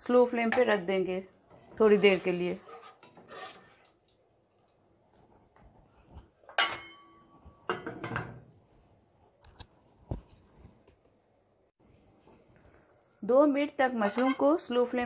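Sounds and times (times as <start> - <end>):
lid scraping on rim: 1.9 - 3.8.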